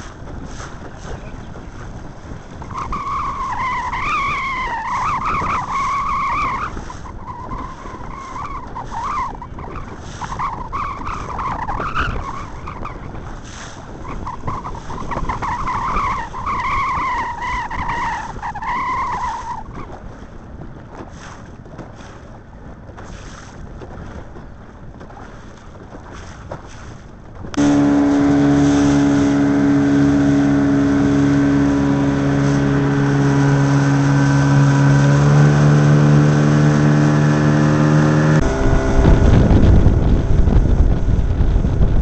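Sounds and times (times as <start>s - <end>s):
rushing water: 0.0s - 42.0s
wind on microphone: 0.0s - 42.0s
outboard motor running: 19.9s - 42.0s.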